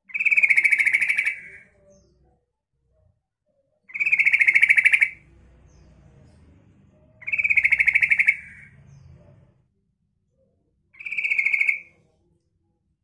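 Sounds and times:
bird chattering: 0:00.0 - 0:01.8, 0:03.9 - 0:05.3, 0:07.2 - 0:09.1, 0:11.0 - 0:12.0.

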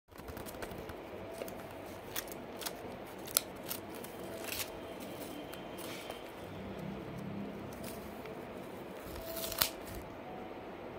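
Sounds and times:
paper snapping: 0:00.1 - 0:04.7, 0:09.0 - 0:10.0
paper rustling and crackling: 0:00.1 - 0:06.4, 0:09.0 - 0:10.0.

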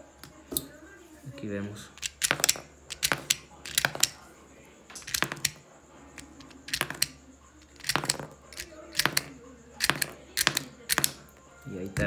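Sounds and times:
small metallic clicks: 0:02.0 - 0:04.2, 0:04.9 - 0:05.6, 0:06.2 - 0:11.3.

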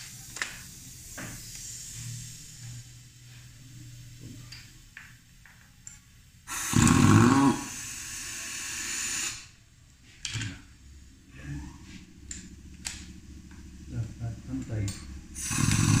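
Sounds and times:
hiss of exhaust air: 0:00.0 - 0:03.4, 0:06.5 - 0:09.6, 0:15.2 - 0:16.0
air impact wrench burst: 0:06.5 - 0:09.6, 0:15.3 - 0:16.0.

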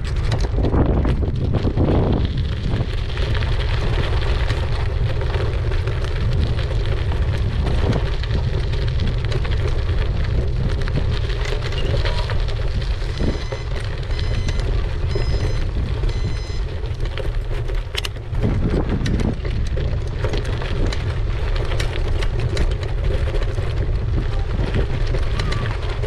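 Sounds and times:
bicycle tyres rolling on gravel: 0:00.0 - 0:26.0
wind buffeting microphone: 0:00.0 - 0:26.0.

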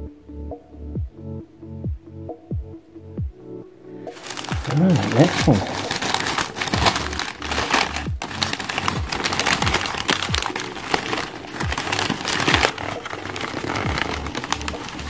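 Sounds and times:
paper crumpling and crackling: 0:04.1 - 0:15.0.

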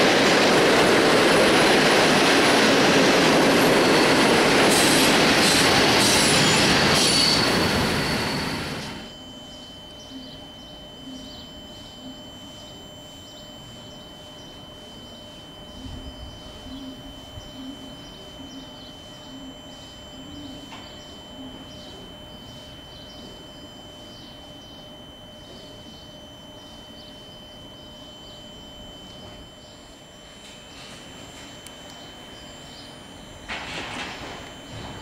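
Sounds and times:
train electrical whine and hum: 0:00.0 - 0:35.0
small birds chirping: 0:09.5 - 0:30.0.

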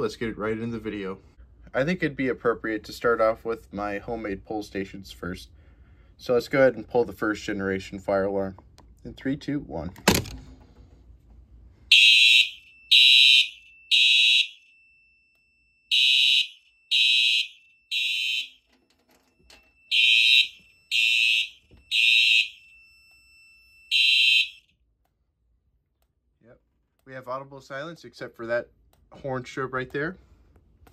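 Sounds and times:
fire alarm horn blasts: 0:11.9 - 0:18.7, 0:19.6 - 0:22.8, 0:23.9 - 0:24.7.

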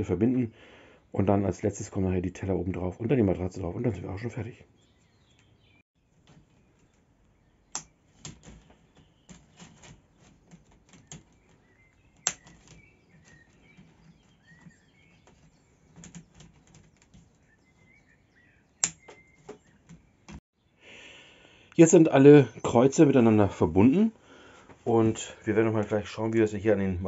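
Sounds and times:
sharp plastic snaps: 0:07.7 - 0:13.9, 0:18.8 - 0:20.4
plastic connectors clicking together: 0:12.2 - 0:12.8, 0:18.8 - 0:19.6.

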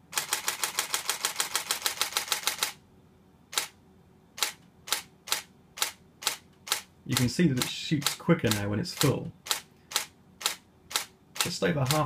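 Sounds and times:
camera shutter firing: 0:00.2 - 0:02.8, 0:04.4 - 0:07.3, 0:09.5 - 0:11.5.

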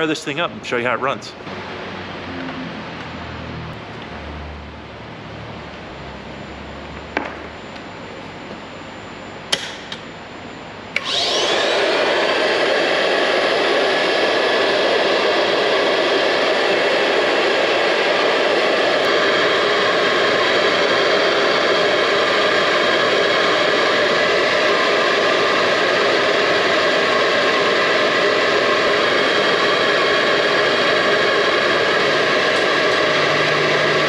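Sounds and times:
vacuum cleaner motor running: 0:11.0 - 0:34.0.

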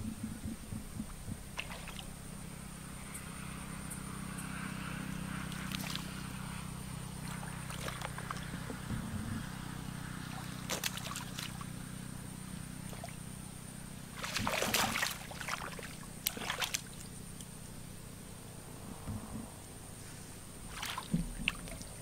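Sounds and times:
muddy water splashing: 0:00.0 - 0:02.1, 0:05.5 - 0:06.2, 0:07.2 - 0:11.8, 0:12.8 - 0:13.2, 0:14.1 - 0:17.4, 0:20.6 - 0:22.0
steady low hum: 0:00.0 - 0:22.0.

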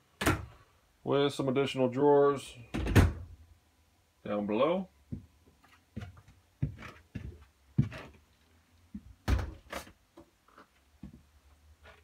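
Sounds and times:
door knocks and thuds: 0:02.7 - 0:03.3, 0:09.2 - 0:09.7.

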